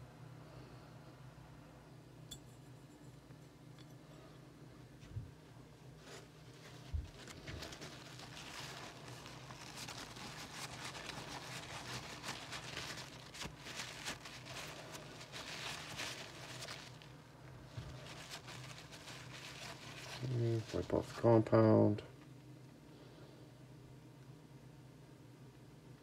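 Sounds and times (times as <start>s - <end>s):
cloth rag scrubbing metal: 5.9s - 16.7s.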